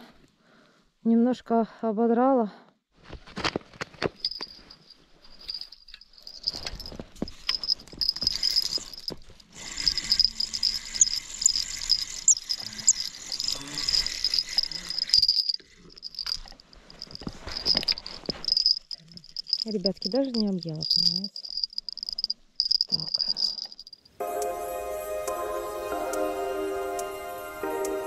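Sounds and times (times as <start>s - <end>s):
high-pitched chirring: 7.4s - 24.6s
fishing reel rattling whir: 7.5s - 20.1s, 20.8s - 24.0s.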